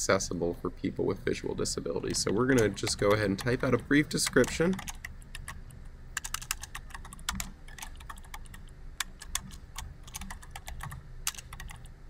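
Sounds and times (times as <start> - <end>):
typing on computer keyboard: 2.1 - 5.6, 6.2 - 11.9.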